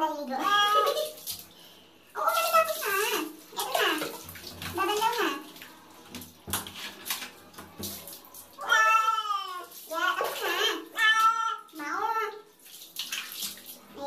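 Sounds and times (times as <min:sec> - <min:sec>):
water splashing from a dipper: 0:00.2 - 0:14.0
cat meowing: 0:08.6 - 0:09.6, 0:10.9 - 0:11.8.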